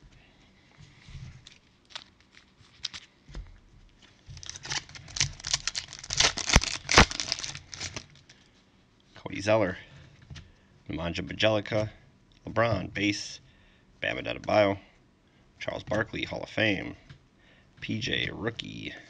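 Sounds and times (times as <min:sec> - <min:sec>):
wrapper crinkling and tearing: 0:01.4 - 0:03.2, 0:04.3 - 0:08.4.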